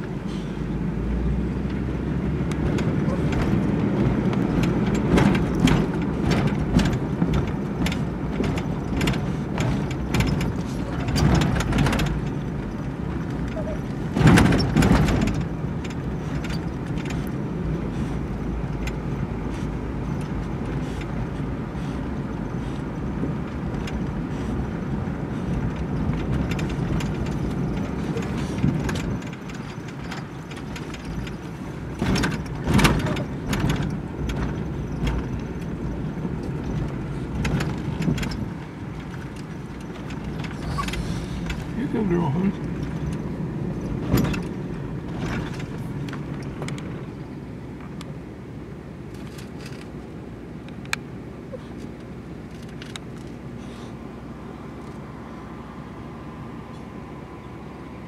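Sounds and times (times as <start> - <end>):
vehicle engine and road noise: 0.0 - 58.0
small knocks and rattles: 2.5 - 17.4, 25.3 - 47.1.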